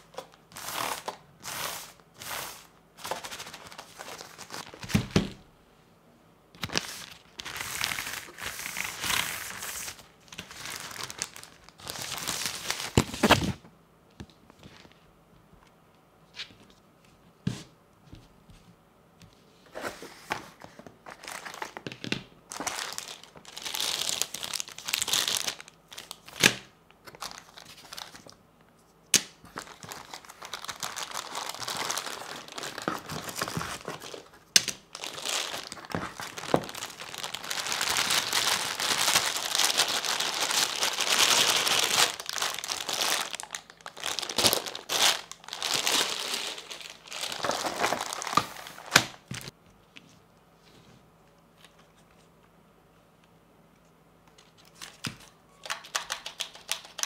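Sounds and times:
plastic bags crinkling: 3.0s - 5.1s, 6.7s - 13.5s, 21.1s - 28.4s, 29.5s - 49.5s.

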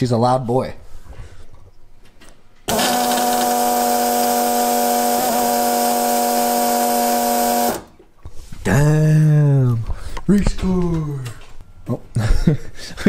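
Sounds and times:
electric fuel pump whine: 2.7s - 7.9s.

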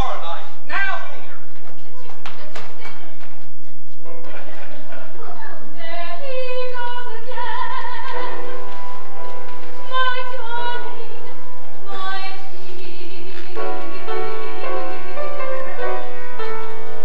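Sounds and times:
woman singing with vibrato: 5.7s - 8.8s, 9.8s - 16.4s
sustained accompaniment chords: 8.0s - 17.0s.

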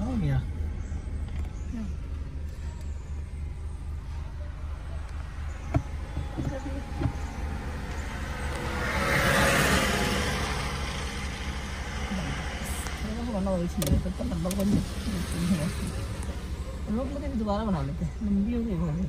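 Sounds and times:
car engine and road rumble: 0.0s - 19.0s
vehicle passing on wet road: 6.7s - 17.4s.

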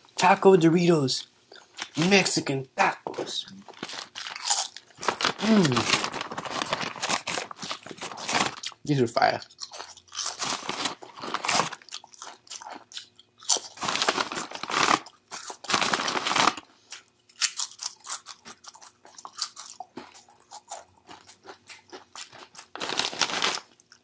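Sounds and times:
crunching tortilla chips: 3.6s - 24.0s
chewing crackles: 7.5s - 24.0s.

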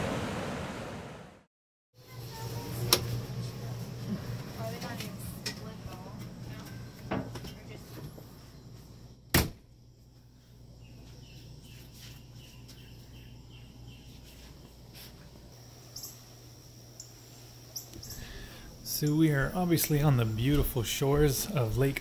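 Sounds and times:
faint chirping: 10.2s - 14.9s, 15.5s - 21.6s.

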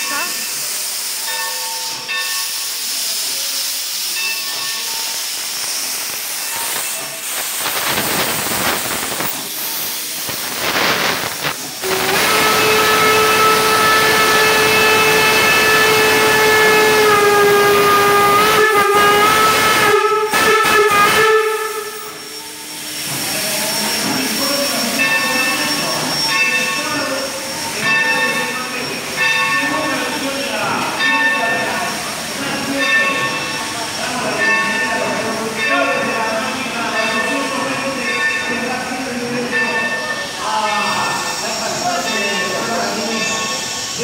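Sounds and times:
locomotive venting steam: 0.0s - 44.0s
steam whistle blast: 10.6s - 24.8s.

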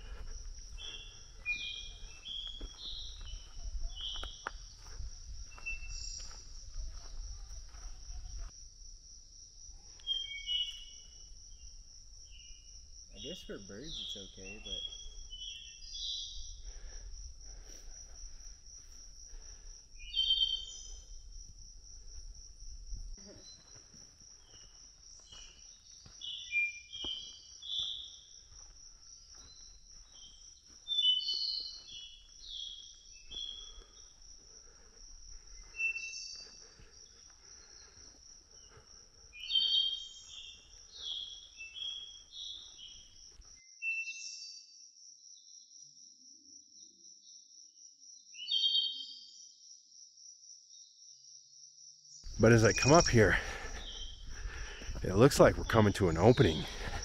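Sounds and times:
bird chirps and calls: 13.2s - 16.5s, 20.0s - 21.0s.

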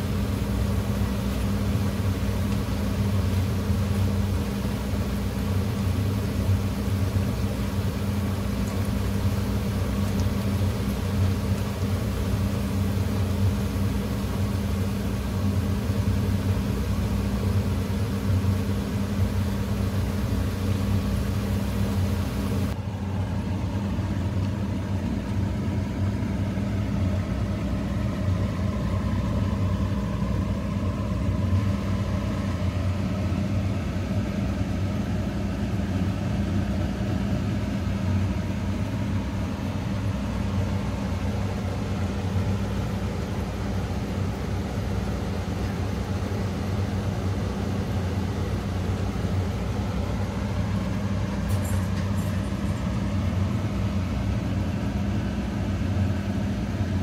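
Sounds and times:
food sizzling in hot oil: 0.0s - 22.8s
low mechanical hum: 0.0s - 57.0s.

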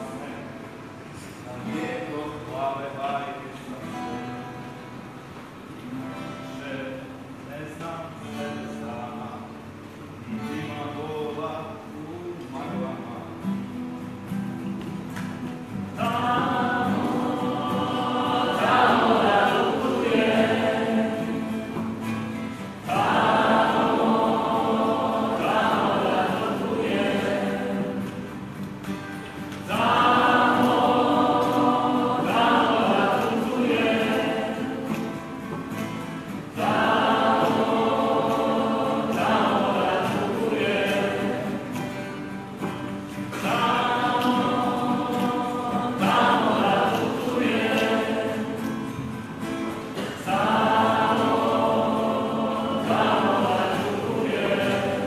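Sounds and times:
group singing in unison: 15.2s - 55.0s.

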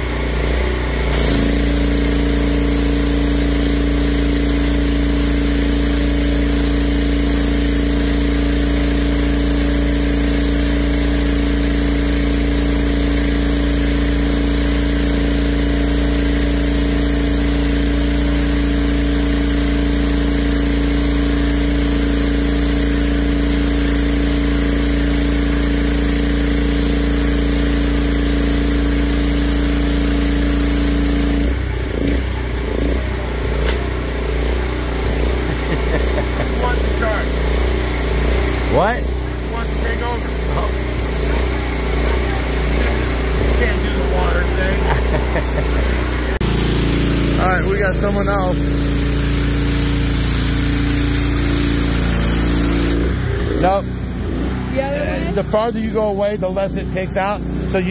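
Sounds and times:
pressure washer running: 0.0s - 57.9s
water jet hissing on concrete: 1.1s - 32.3s, 32.9s - 57.9s.

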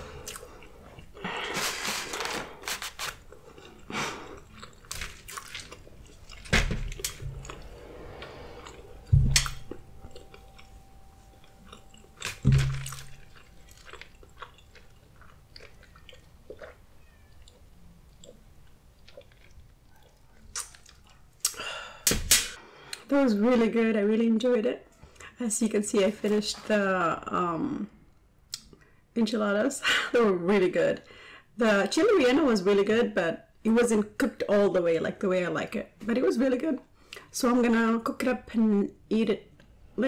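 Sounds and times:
chewing and mouth sounds: 0.1s - 1.5s, 2.2s - 21.6s
small crackles: 0.4s - 7.7s
low thumps: 6.4s - 11.2s.

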